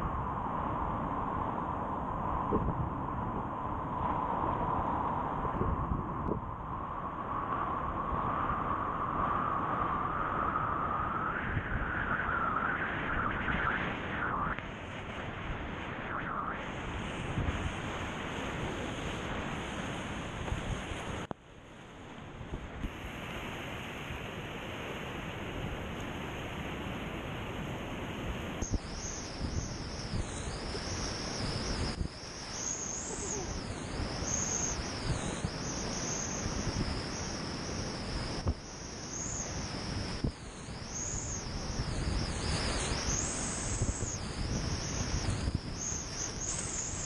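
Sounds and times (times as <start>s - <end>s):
wind buffeting microphone: 2.1s - 16.2s, 28.6s - 47.0s
wavering high hiss: 28.5s - 47.0s.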